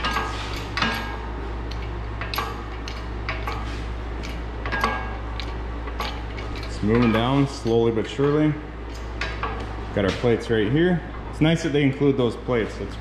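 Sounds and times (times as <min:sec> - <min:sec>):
jack pump handle clicking and clanking: 0:00.0 - 0:10.4.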